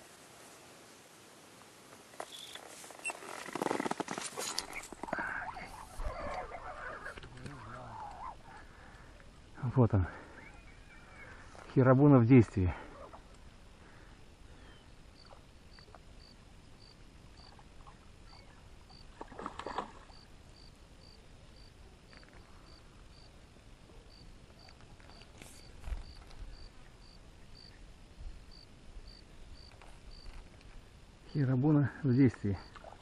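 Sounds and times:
noisy rustle: 0.0s - 8.4s, 22.0s - 31.6s
insect-like high chirp: 2.2s - 3.3s, 14.6s - 23.3s, 24.1s - 27.8s.

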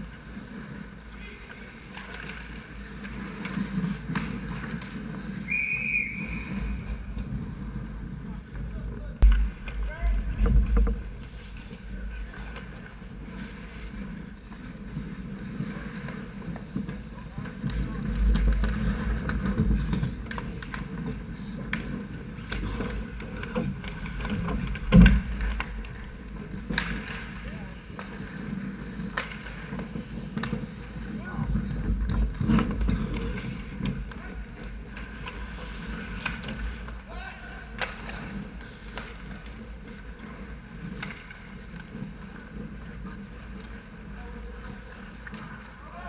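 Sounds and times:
hockey sticks clacking: 0.0s - 46.0s
skates scraping ice: 0.0s - 46.0s
heavy thump: 9.2s - 11.4s.

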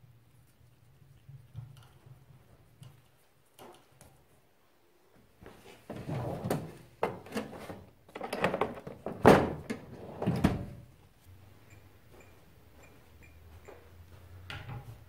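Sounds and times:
metal drawer sliding open: 5.9s - 10.8s.

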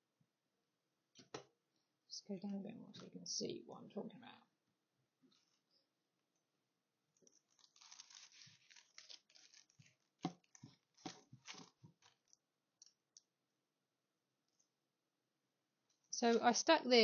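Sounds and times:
paper crinkling and rustling: 7.3s - 12.4s.

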